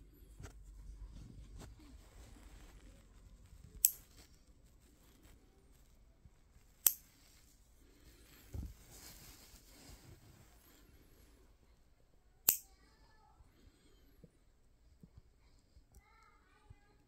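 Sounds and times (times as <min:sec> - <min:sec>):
nail clipper clicking: 0:06.8 - 0:07.0, 0:12.5 - 0:12.7.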